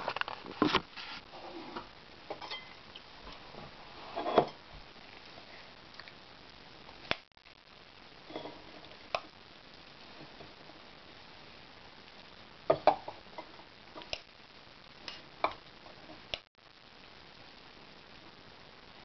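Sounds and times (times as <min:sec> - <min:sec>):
metal pot and lid clinking: 0:02.3 - 0:02.8.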